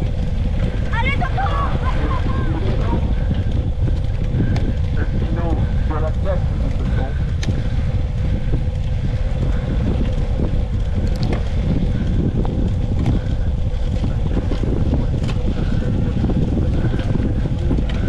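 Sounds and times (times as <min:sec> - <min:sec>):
wind buffeting microphone: 0:00.0 - 0:18.0
faint ticks: 0:06.7 - 0:07.9.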